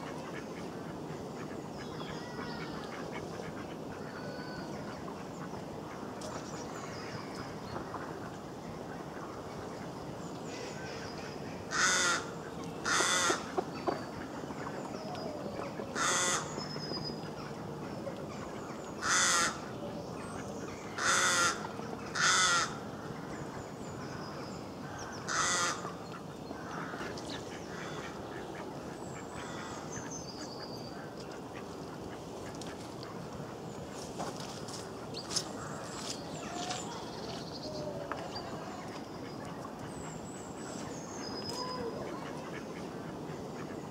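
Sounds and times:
harsh bird calls: 0:15.0 - 0:17.2
small birds chirping: 0:33.7 - 0:42.5.

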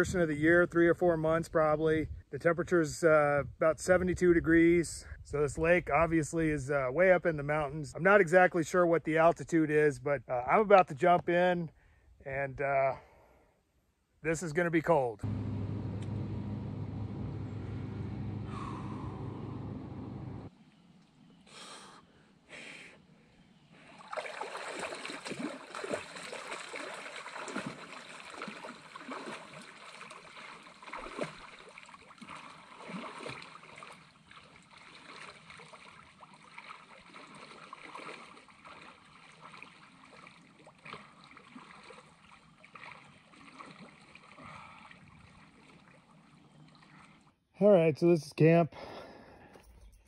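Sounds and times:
small waves lapping at shore: 0:23.9 - 0:47.3
water splashing from swimmer: 0:23.9 - 0:47.3.

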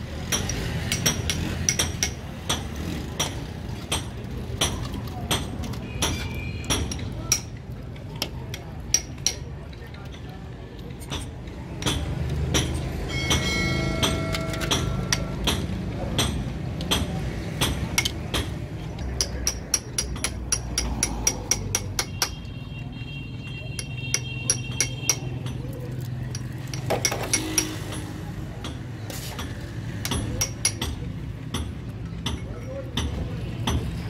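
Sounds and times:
metal parts clinking and tapping: 0:03.2 - 0:16.9, 0:23.8 - 0:28.1
ringing metal notes: 0:13.0 - 0:15.7.

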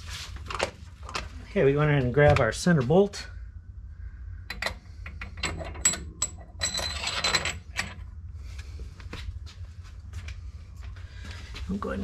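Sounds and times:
small steel parts clinking: 0:04.5 - 0:08.0.

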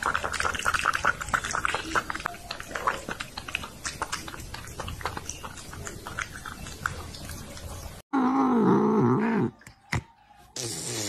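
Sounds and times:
cat lapping water: 0:00.0 - 0:08.0.

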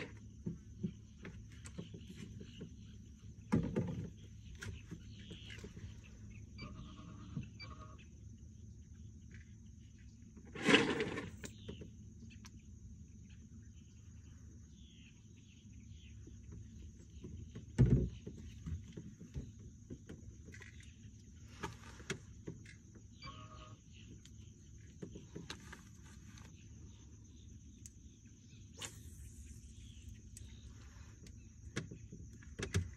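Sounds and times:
faint high-pitched whine: 0:22.6 - 0:32.9.

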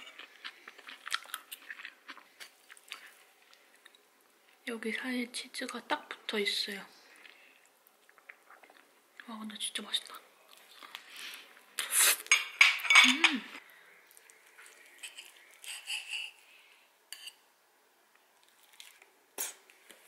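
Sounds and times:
cutlery scraping a plate: 0:15.0 - 0:16.4, 0:17.1 - 0:17.4.

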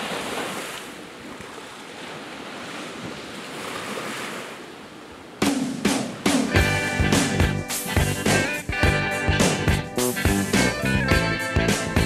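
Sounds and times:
waves washing onto beach: 0:00.0 - 0:06.6
plucked guitar music: 0:06.5 - 0:12.0.

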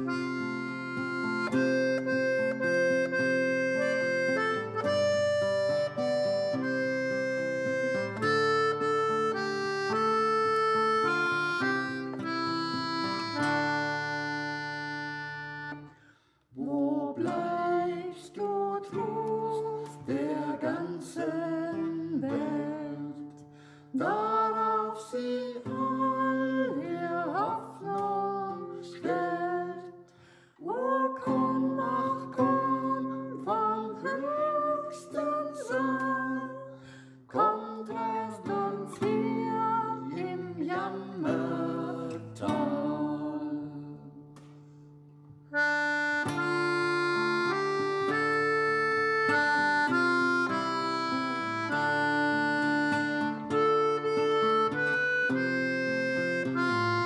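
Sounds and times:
person singing a melody: 0:16.6 - 0:23.4, 0:24.0 - 0:30.0, 0:30.6 - 0:44.4.

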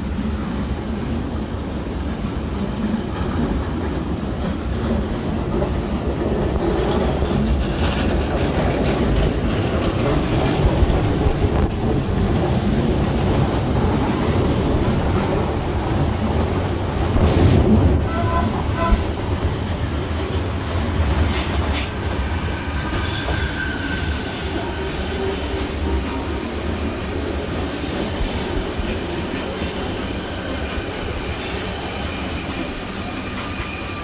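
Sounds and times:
train carriage rumbling: 0:00.0 - 0:34.0.

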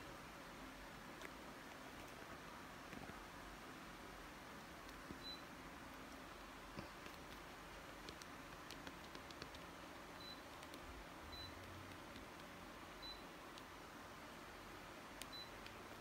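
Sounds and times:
air conditioner high beeps: 0:05.2 - 0:05.5, 0:10.2 - 0:10.5, 0:11.3 - 0:11.6, 0:13.0 - 0:13.4, 0:15.3 - 0:15.6.

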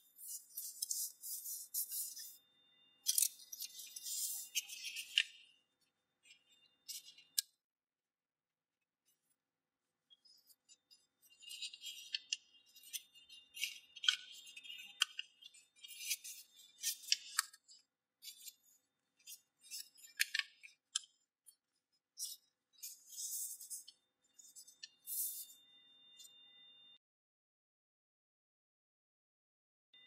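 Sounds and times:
paper being folded and creased: 0:00.1 - 0:02.3, 0:03.1 - 0:05.3, 0:22.2 - 0:23.8.

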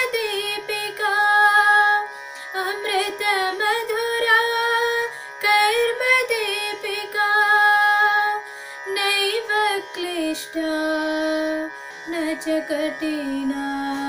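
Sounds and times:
woman singing: 0:00.0 - 0:14.0.

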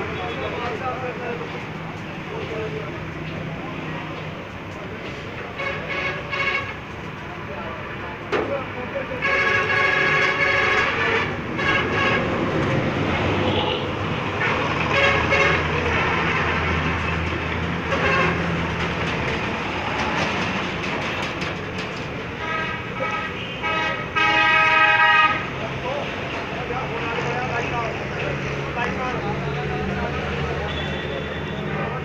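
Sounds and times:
road traffic rumble: 0:00.0 - 0:32.0
vehicle horns honking: 0:05.5 - 0:06.9, 0:09.1 - 0:12.4, 0:13.4 - 0:16.4, 0:17.9 - 0:18.5, 0:22.4 - 0:25.5, 0:30.6 - 0:32.0.

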